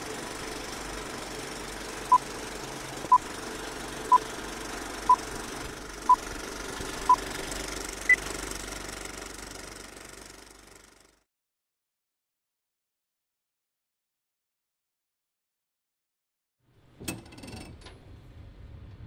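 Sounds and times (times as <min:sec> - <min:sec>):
film projector whir and clatter: 0:00.0 - 0:11.2.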